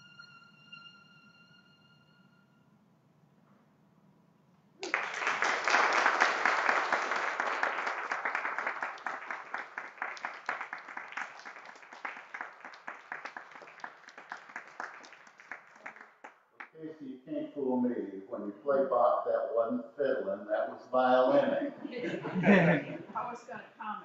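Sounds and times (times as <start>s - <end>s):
congregation applauding: 4.8s - 16.8s.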